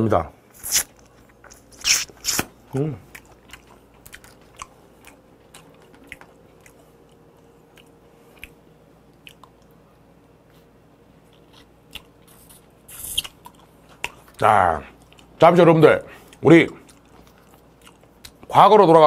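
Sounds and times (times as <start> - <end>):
faint steady hum: 0.0 - 19.0
faint chewing: 0.6 - 15.4, 16.1 - 18.5.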